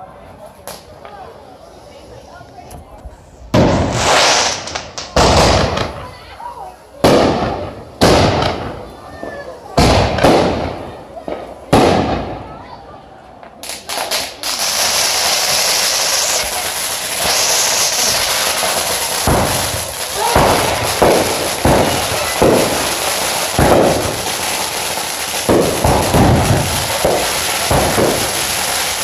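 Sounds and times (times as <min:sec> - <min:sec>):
firework pops and bangs: 0:00.6 - 0:01.2, 0:03.5 - 0:06.2, 0:07.0 - 0:12.6, 0:13.4 - 0:29.0
firework high hiss: 0:03.1 - 0:08.9, 0:13.6 - 0:29.0.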